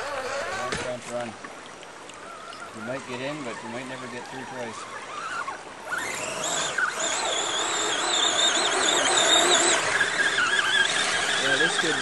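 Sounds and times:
electric motor whining: 2.8 - 12.0.

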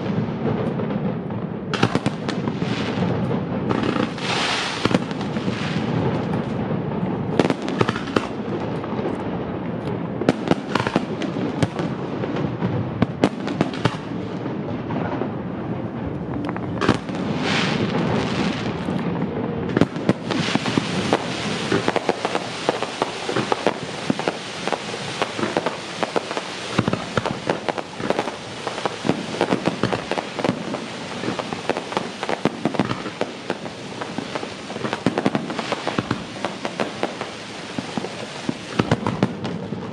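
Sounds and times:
fireworks crackling and popping: 0.0 - 39.9
firework shells bursting: 19.8 - 39.6.

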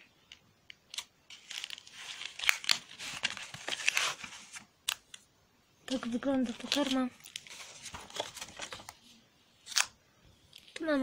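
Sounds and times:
packaging crinkling and rustling: 0.9 - 5.0, 5.9 - 9.0.

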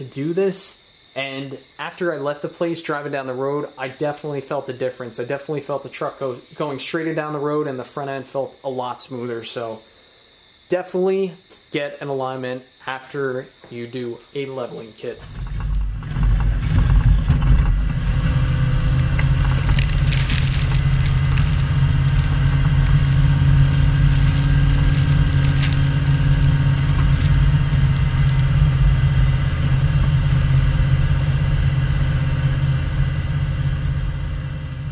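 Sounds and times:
pickup truck engine running: 15.3 - 34.9
snow scraping against plow blade: 16.0 - 28.8.

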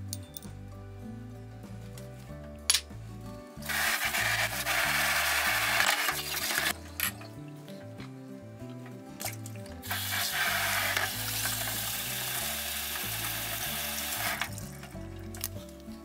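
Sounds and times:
food sizzling in a pan: 3.7 - 6.7, 9.8 - 14.7.

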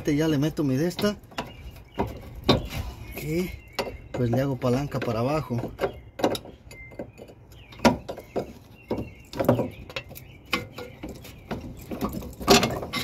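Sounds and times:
pry bar knocking on metal: 3.7 - 11.0.

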